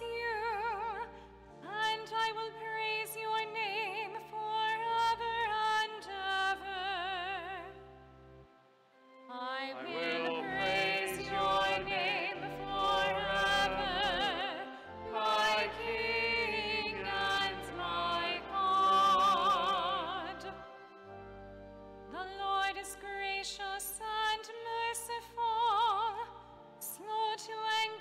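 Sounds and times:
singing voice with vibrato: 0:09.3 - 0:20.7.

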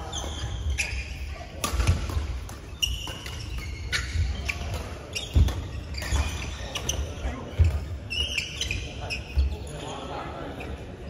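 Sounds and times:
shoes squeaking on court: 0:00.0 - 0:11.0
rackets hitting shuttlecock: 0:00.1 - 0:08.4.

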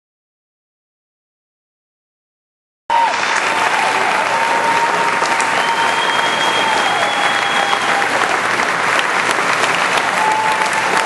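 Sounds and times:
crowd applauding: 0:02.9 - 0:11.0.

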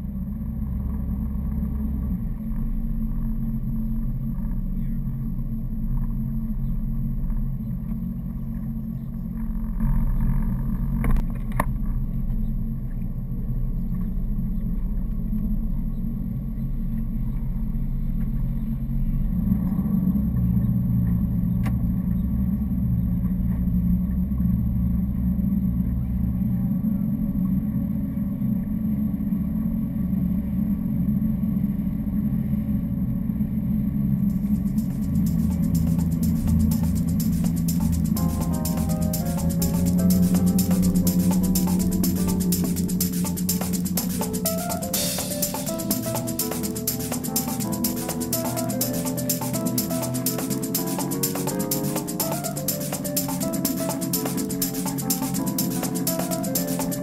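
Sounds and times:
boat engine humming: 0:34.3 - 0:57.0.

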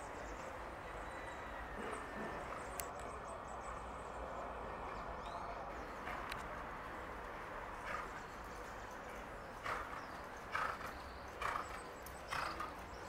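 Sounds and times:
horse trotting on dirt: 0:09.5 - 0:13.0.

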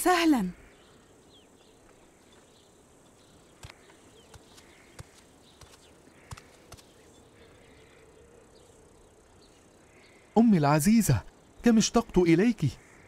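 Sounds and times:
light insect hum: 0:00.0 - 0:13.0
sharp clicks: 0:03.6 - 0:06.9.

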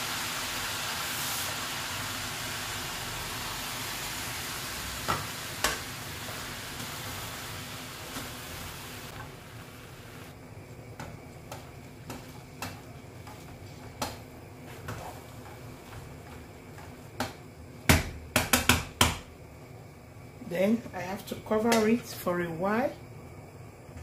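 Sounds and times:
faint sizzle: 0:00.0 - 0:18.0
wooden spoon stirring thick filling: 0:10.6 - 0:17.2
spoon knocking on metal pot: 0:17.9 - 0:19.2.

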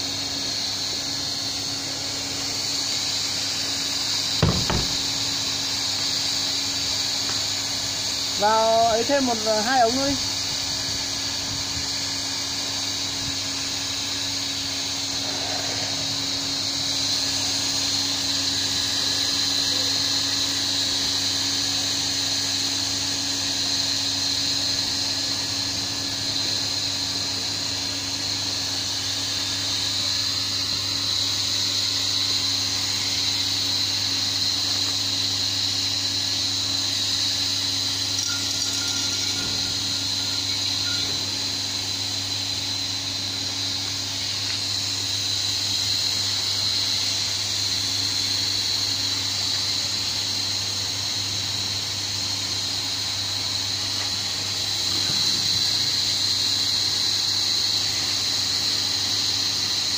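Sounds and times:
hot air hissing: 0:00.0 - 0:46.9
blower whirring hum: 0:00.0 - 0:59.9.

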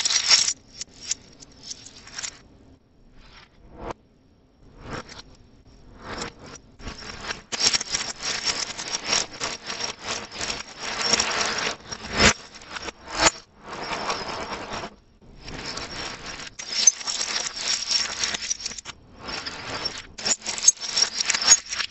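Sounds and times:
packaging crackling and rustling: 0:00.0 - 0:02.4, 0:07.0 - 0:12.9, 0:15.6 - 0:21.9.

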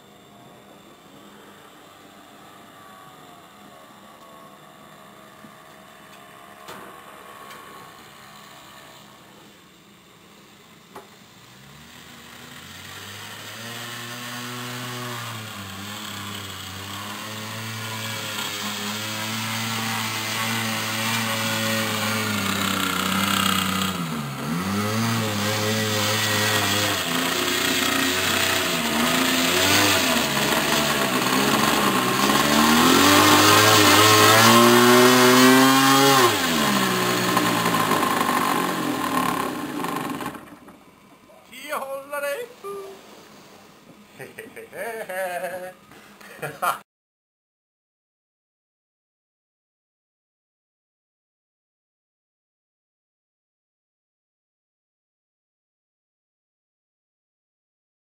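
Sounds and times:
small model airplane engine: 0:00.0 - 0:40.8.

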